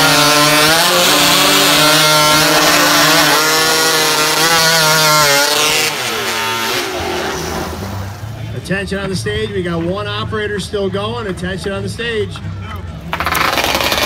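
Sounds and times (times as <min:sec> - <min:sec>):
chainsaw cutting log: 0:00.0 - 0:07.8, 0:13.2 - 0:14.0.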